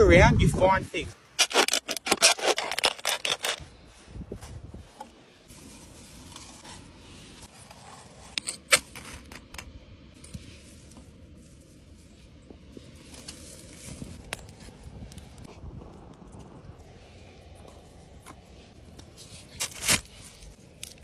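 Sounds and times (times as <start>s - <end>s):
metal scraping on concrete: 1.4s - 3.6s.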